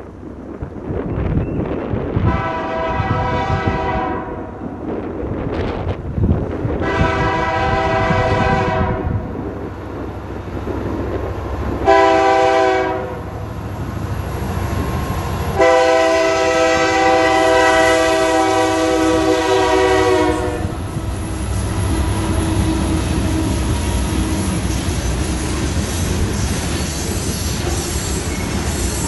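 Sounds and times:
low rumble of passing train: 0.0 - 29.0
wind: 0.0 - 29.0
locomotive air horn: 2.2 - 4.5, 6.8 - 9.2, 11.8 - 13.3, 15.5 - 20.8.

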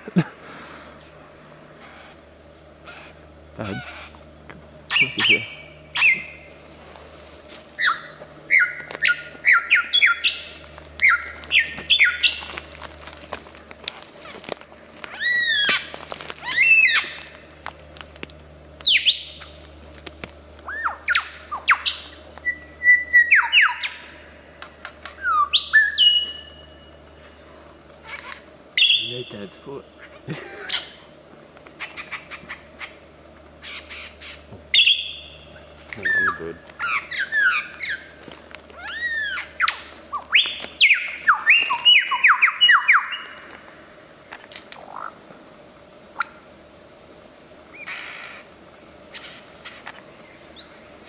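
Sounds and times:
lyrebird mimicking bird calls: 2.8 - 4.3, 4.9 - 6.6, 7.8 - 12.8, 14.1 - 19.6, 20.6 - 26.5, 28.0 - 31.0, 31.7 - 33.0, 33.6 - 43.8, 44.4 - 45.4, 47.7 - 48.5.

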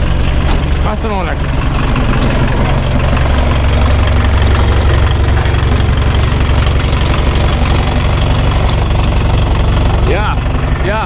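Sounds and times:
van engine idling: 0.0 - 11.0.

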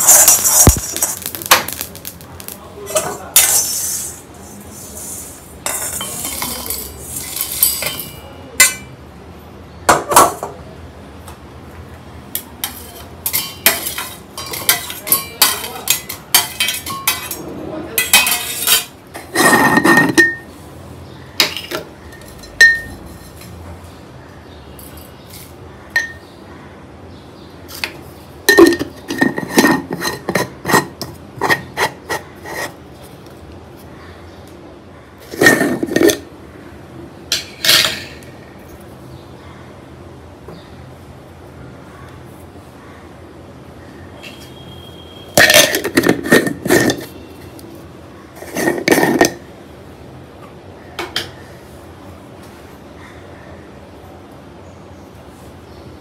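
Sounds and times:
kitchen utensils clinking on dishes: 0.0 - 1.2, 2.9 - 9.0, 9.9 - 10.6, 12.4 - 20.5, 21.4 - 23.6, 24.8 - 26.3, 27.7 - 32.8, 35.3 - 36.3, 37.3 - 38.3, 45.4 - 47.5.

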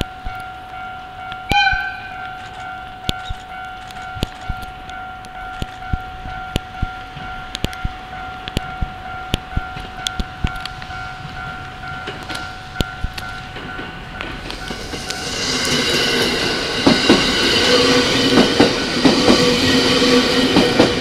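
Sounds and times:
level crossing alarm tone: 0.0 - 13.8
train rumble: 0.0 - 21.0.

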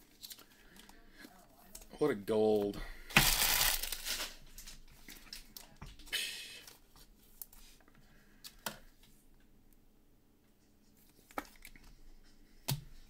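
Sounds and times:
card packaging rustling: 2.6 - 5.5.

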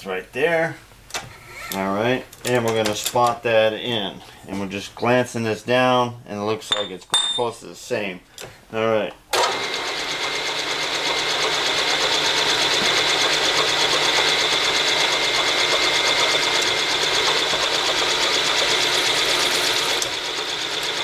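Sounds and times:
milling machine spindle whining: 9.4 - 21.0.

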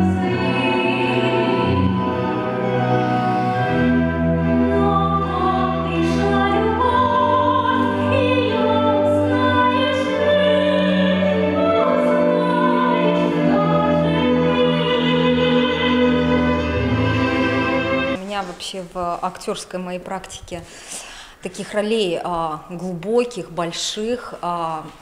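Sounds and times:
orchestral accompaniment: 0.0 - 18.2
woman singing operatic aria: 0.0 - 18.2.

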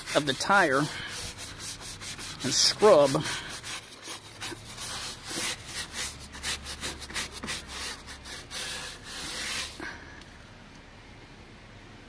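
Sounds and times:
brush scrubbing wet rubber: 0.0 - 10.0.

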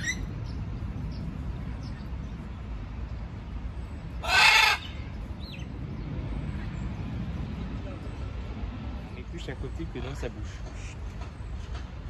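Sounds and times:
macaw squawk: 0.0 - 0.3, 4.2 - 5.0.

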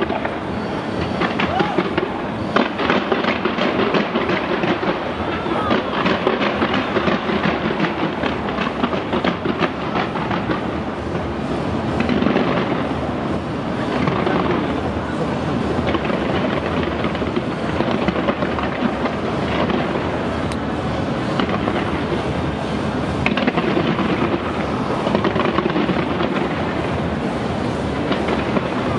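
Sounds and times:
fireworks crackling and popping: 0.0 - 28.9
steady fireworks rumble: 0.0 - 28.9.

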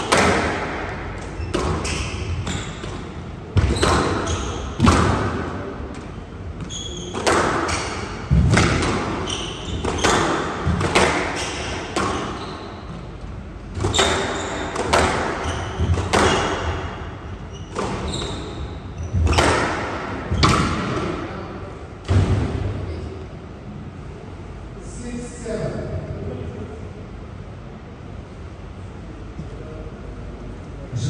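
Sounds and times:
squash ball hitting rackets and walls: 0.0 - 21.3, 22.0 - 22.8
shoes squeaking on court floor: 1.2 - 4.9, 6.6 - 13.2, 13.8 - 19.6.

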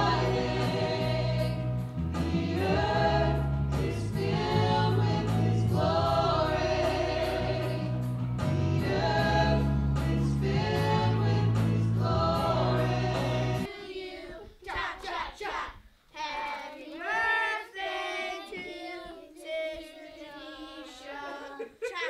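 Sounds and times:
deep bass: 0.0 - 13.7
keyboard: 0.0 - 13.7
voices singing: 0.0 - 21.9.

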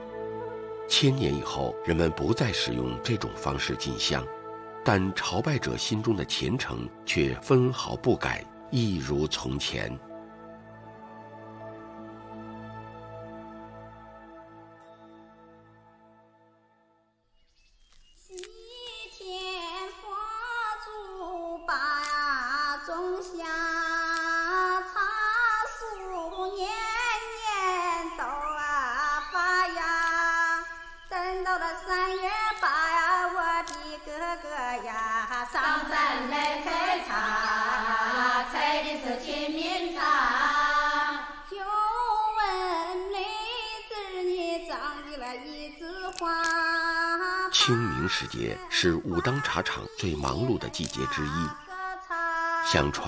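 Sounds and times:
high voice singing slow melody: 18.4 - 53.0.

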